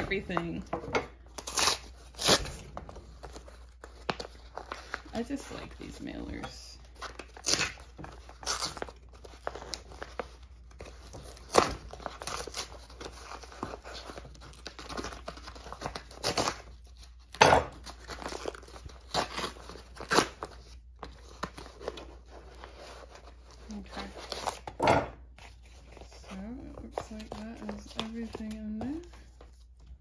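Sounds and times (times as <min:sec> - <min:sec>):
paper crinkling: 0:00.0 - 0:30.0
paper mailer tearing: 0:01.3 - 0:03.4.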